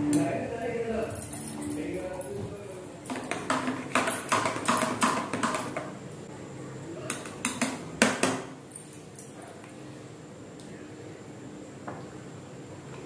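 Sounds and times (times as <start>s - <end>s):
steel utensils clinking: 0.2s - 2.4s.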